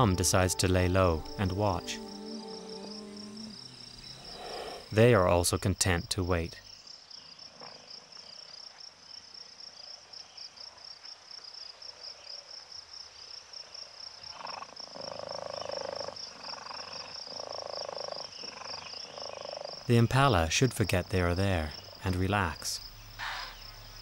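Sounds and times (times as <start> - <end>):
insect chorus trilling: 0.0 - 6.0
lower pulsed insect calls: 0.0 - 6.1, 21.7 - 24.0.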